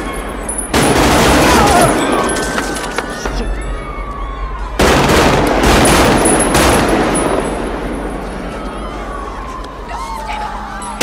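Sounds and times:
automatic rifle fire: 4.8 - 7.5.

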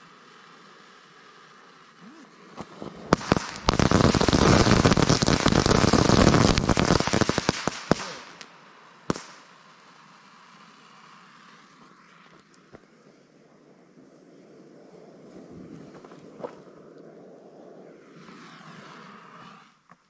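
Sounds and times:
fireworks crackling and popping: 0.0 - 13.4.

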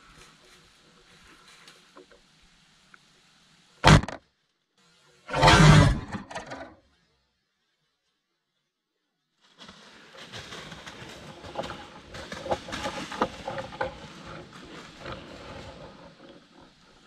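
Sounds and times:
dry leaves rustling: 0.0 - 2.9, 9.3 - 17.0.

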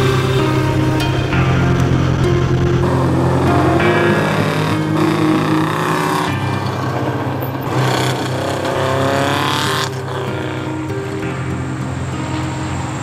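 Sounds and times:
motorcycle engine accelerating: 0.0 - 13.0.

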